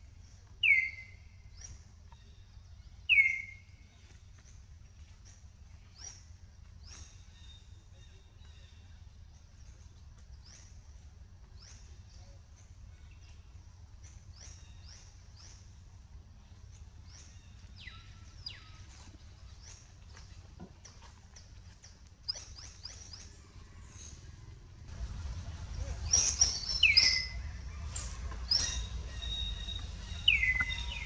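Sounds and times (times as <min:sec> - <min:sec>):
low background rumble: 0:00.0 - 0:31.0
faint bird chirps: 0:00.6 - 0:04.4, 0:25.8 - 0:31.0.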